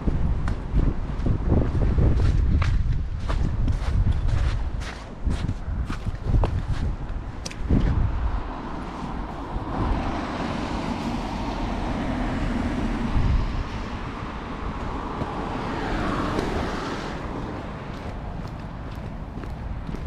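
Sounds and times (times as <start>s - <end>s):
car passing: 7.9s - 20.0s.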